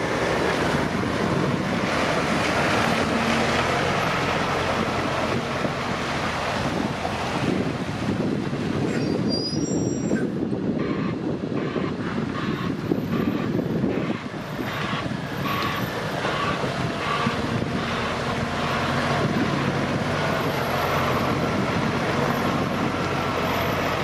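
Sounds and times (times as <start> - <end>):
diesel truck engine running: 0.0 - 8.9, 10.2 - 24.0
reversing alarm beeping: 10.9 - 18.8.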